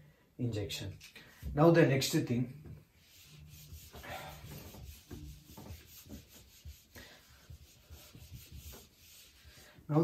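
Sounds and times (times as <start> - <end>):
eraser rubbing on whiteboard: 3.0 - 9.8.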